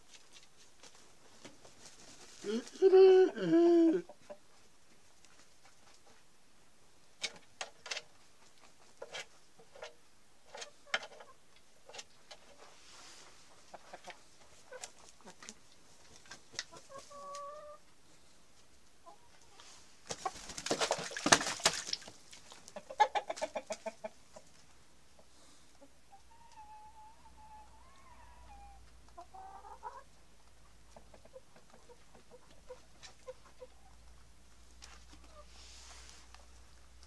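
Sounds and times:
chickens clucking: 0.4 - 6.4, 7.2 - 18.0, 18.6 - 37.0
chickens squawking: 16.6 - 17.8, 22.6 - 24.5, 25.8 - 30.2.

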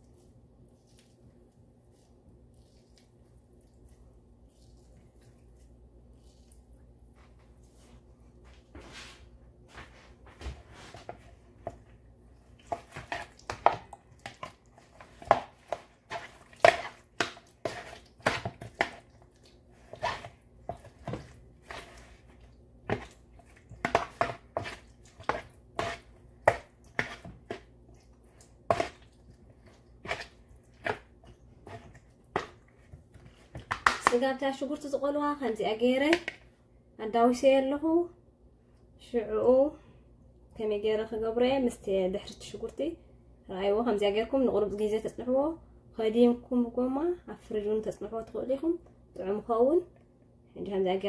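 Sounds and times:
hands mixing wet chicken: 0.0 - 8.6, 9.6 - 36.5.

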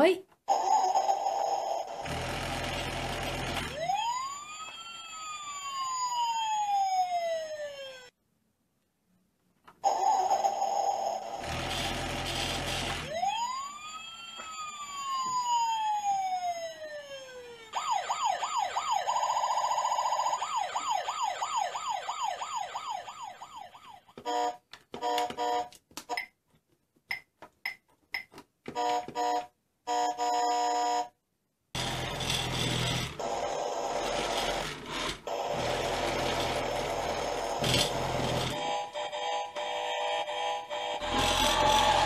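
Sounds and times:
warbling electronic siren: 3.7 - 8.1, 12.4 - 24.1, 38.5 - 42.0.

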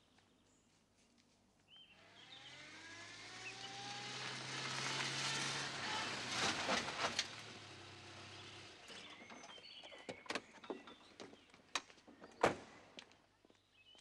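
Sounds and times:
van engine and tyre noise: 1.9 - 10.5.

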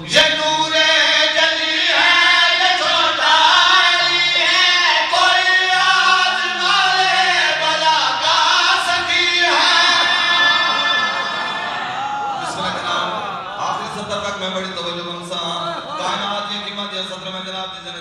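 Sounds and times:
men singing together: 0.0 - 13.6.

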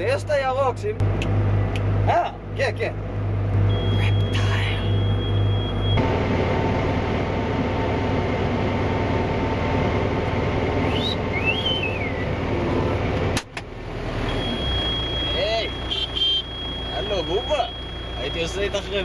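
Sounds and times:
tractor engine running: 0.0 - 19.0
man whistling: 10.8 - 12.3.

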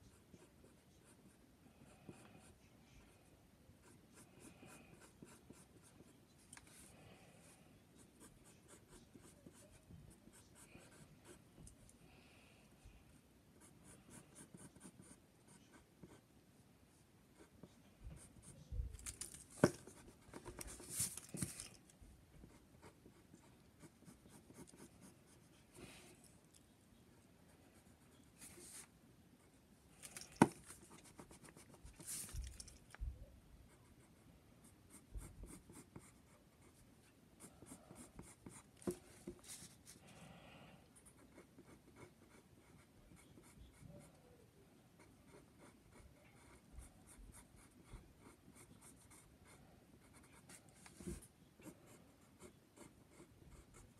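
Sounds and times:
pencil scratching on paper: 0.0 - 1.4, 3.8 - 6.1, 6.7 - 11.5, 13.6 - 16.2, 22.4 - 26.1, 30.4 - 32.4, 34.8 - 36.8, 37.4 - 39.8, 41.0 - 44.1, 45.0 - 53.9.

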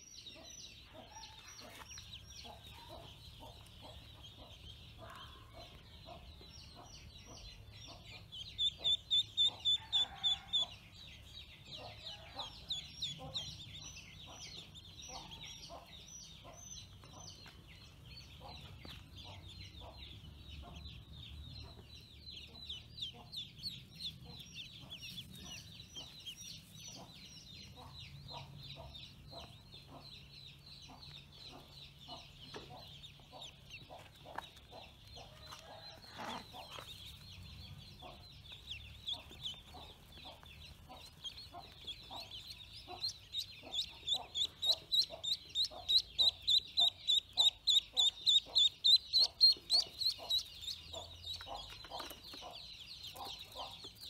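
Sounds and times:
ducklings peeping: 0.1 - 54.0
close duckling loud peeps: 7.9 - 10.6, 39.0 - 51.8.

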